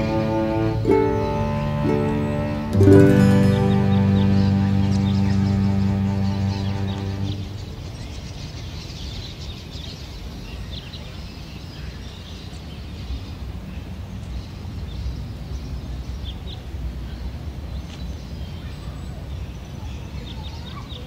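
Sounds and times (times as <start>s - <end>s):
bird chirps: 2.8s - 9.8s.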